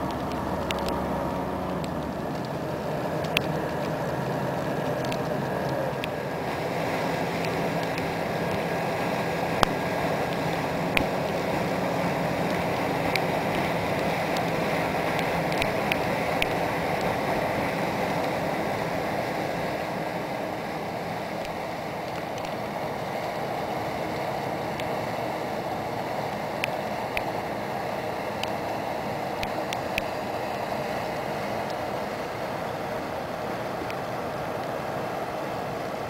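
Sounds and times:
faint ticks: 0.0 - 2.6, 3.2 - 6.2, 12.4 - 17.2, 26.5 - 27.4, 29.4 - 30.2
rush of churned water: 0.0 - 36.0
ship machinery running: 0.0 - 36.0.

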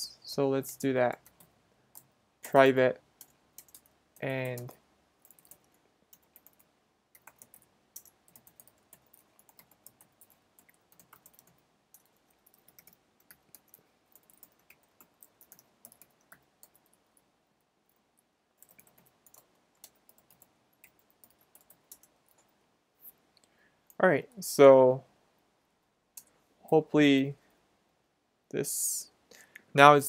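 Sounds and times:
keyboard typing: 1.1 - 17.3, 17.9 - 22.6.

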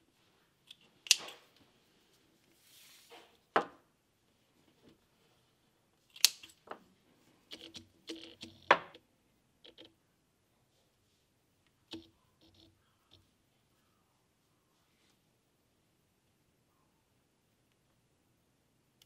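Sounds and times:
hand tools clicking and tapping: 7.5 - 9.0, 11.9 - 13.2.

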